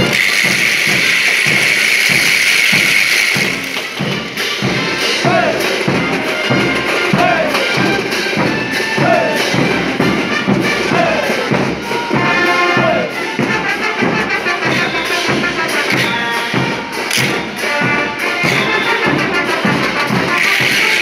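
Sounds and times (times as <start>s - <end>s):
wooden ratchets rattling: 0.0s - 4.0s, 20.3s - 21.0s
brass and drum band playing: 0.0s - 21.0s.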